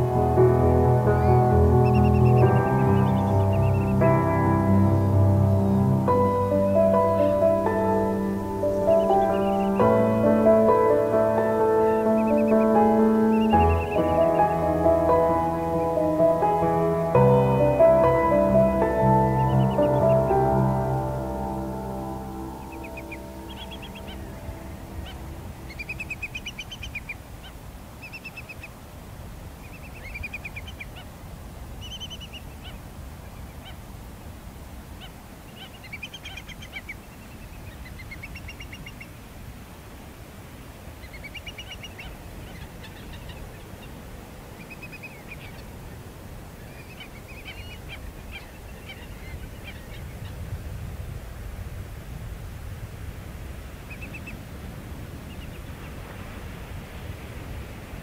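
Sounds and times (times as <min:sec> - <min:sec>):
birds chattering: 0:01.2 - 0:04.1, 0:05.0 - 0:16.7, 0:22.6 - 0:27.2.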